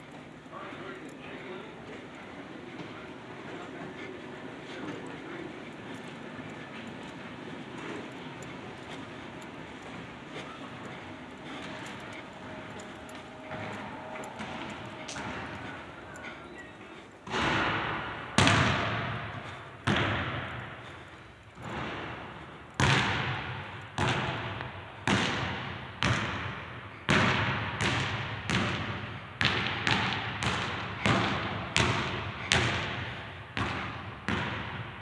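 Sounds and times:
basketball bouncing on gym floor: 12.7 - 16.2, 17.2 - 21.0, 21.6 - 35.0.

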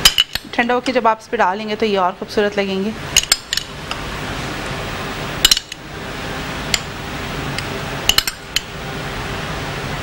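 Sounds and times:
low room hiss: 0.0 - 10.0.

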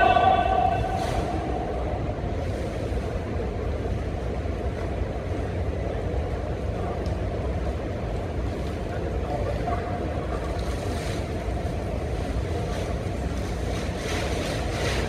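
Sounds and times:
high-pitched shout: 0.0 - 1.7
low room noise rumble: 0.0 - 15.0.

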